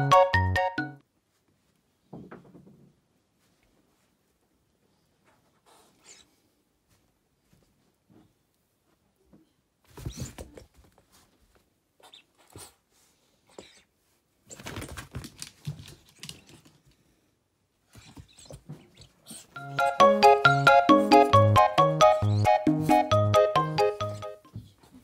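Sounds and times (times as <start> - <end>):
dog claws scrabbling on floor: 14.5 - 17.0.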